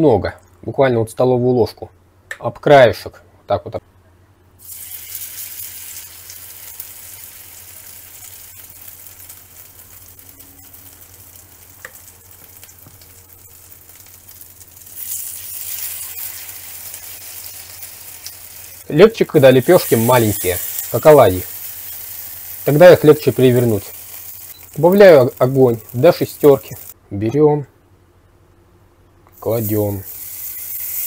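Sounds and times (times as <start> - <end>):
batter sizzling in hot oil: 4.6 - 27.0, 29.4 - 31.0.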